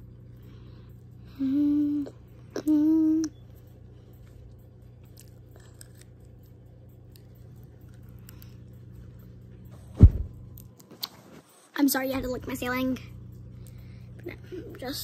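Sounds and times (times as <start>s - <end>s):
low background hum: 0.0s - 15.0s
chewing and crunching candy: 2.0s - 9.4s.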